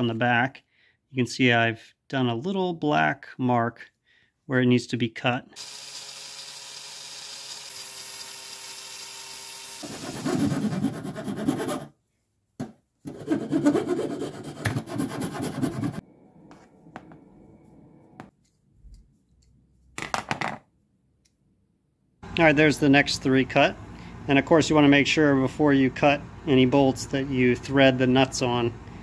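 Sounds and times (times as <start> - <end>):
hand file rasping on metal: 9.8 - 11.9, 13.1 - 16.0.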